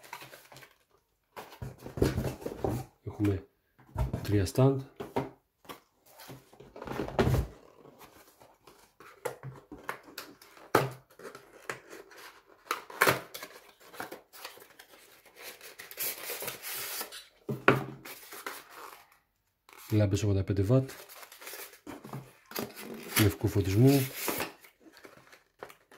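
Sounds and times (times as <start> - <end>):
cardboard box knocked and opened: 1.5 - 2.9, 6.6 - 7.6.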